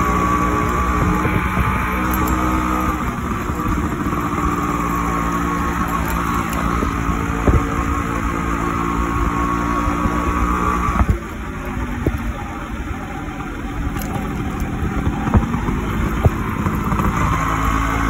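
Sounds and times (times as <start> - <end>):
wind rumble on microphone: 0.0 - 12.8
motorcycle engine running: 0.0 - 18.0.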